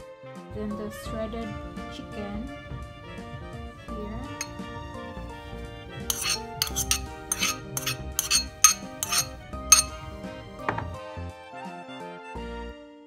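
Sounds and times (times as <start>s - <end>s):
background music: 0.0s - 13.0s
metal utensil clinking on ceramic bowl: 4.3s - 4.7s, 6.1s - 10.1s.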